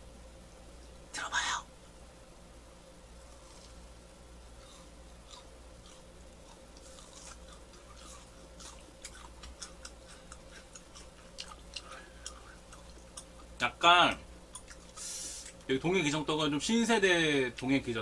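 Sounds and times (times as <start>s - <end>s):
close chewing clicks and smacks: 4.6s - 13.6s, 14.5s - 15.7s.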